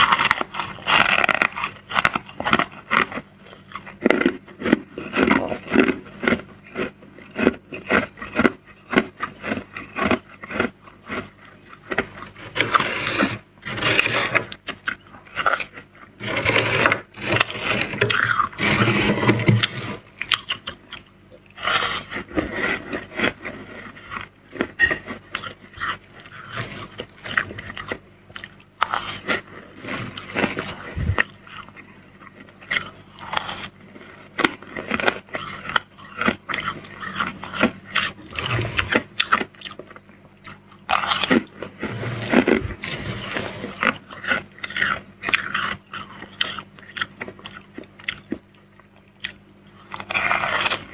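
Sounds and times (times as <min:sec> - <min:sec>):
spoon scraping icy frost: 0:12.4 - 0:14.6, 0:16.2 - 0:20.0, 0:38.3 - 0:39.1, 0:41.8 - 0:44.0.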